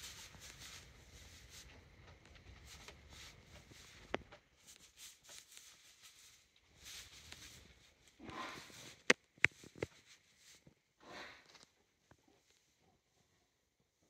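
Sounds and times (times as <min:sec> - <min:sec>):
rustling of straw bedding: 0:00.0 - 0:10.6.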